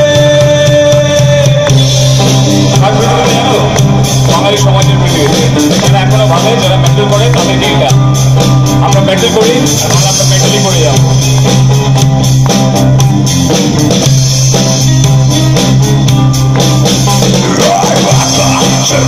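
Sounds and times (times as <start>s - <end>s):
person singing: 0.0s - 8.0s, 17.3s - 19.0s
drum kit: 0.0s - 19.0s
guitars: 0.0s - 19.0s.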